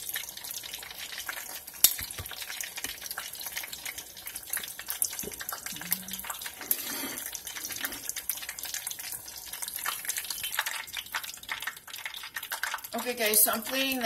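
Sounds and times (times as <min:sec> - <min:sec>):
shrimp deep-frying in oil: 0:00.0 - 0:14.0.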